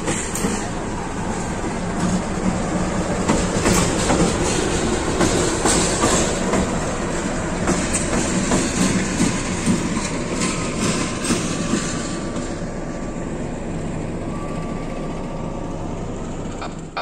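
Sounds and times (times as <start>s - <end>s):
wheels clacking over rail joints: 0.0s - 12.7s
locomotive engine running: 0.0s - 17.0s.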